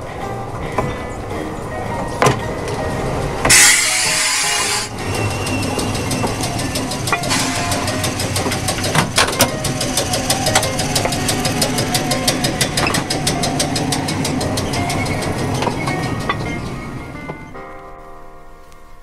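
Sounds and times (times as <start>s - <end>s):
steel wheels clicking on rails: 0.0s - 17.6s
sharp knocks: 5.8s - 17.5s.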